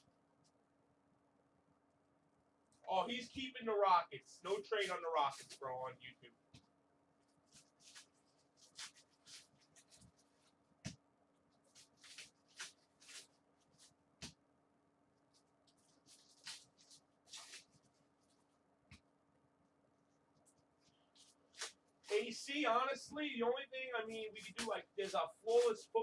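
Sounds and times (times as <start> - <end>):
foil wrapper crinkling: 7.4 - 10.5, 11.6 - 13.9, 15.3 - 18.4
cards sliding and rustling: 11.7 - 13.9, 15.9 - 17.8.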